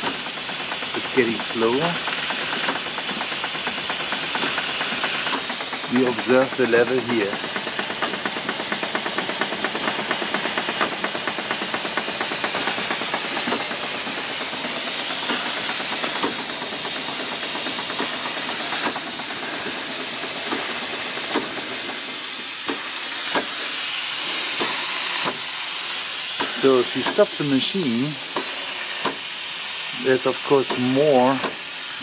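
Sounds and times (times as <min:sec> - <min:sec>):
steam hissing: 0:00.0 - 0:32.0
steam machinery fast ticking: 0:00.0 - 0:32.0
steam pump clunks: 0:00.0 - 0:32.0.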